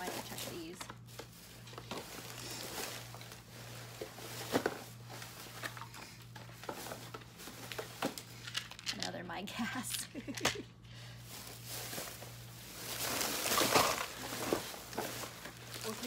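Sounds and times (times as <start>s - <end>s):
plastic bag and wrappers crinkling: 0.0s - 10.4s, 11.2s - 16.0s
steady low hum: 0.0s - 16.0s.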